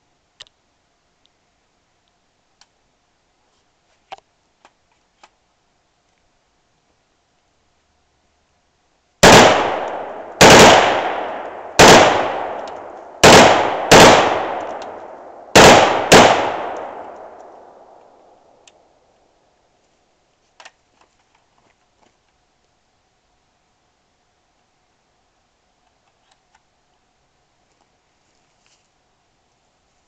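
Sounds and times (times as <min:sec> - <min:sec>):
rifle shots with echo: 0:09.2 - 0:18.6
faint click: 0:16.7 - 0:18.8.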